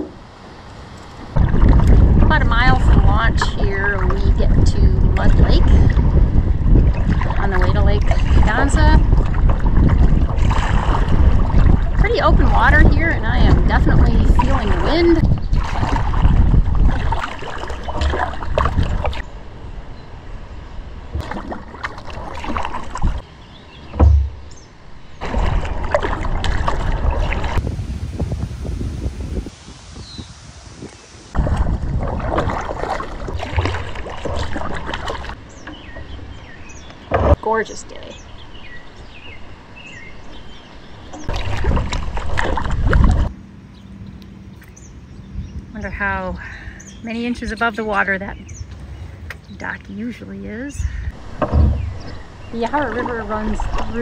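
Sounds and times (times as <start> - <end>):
paddle splashing in water: 1.2 - 19.3, 21.1 - 24.5, 25.2 - 28.1, 30.9 - 36.2, 40.3 - 43.4, 50.9 - 54.0
low thump: 23.9 - 24.5, 51.4 - 52.2.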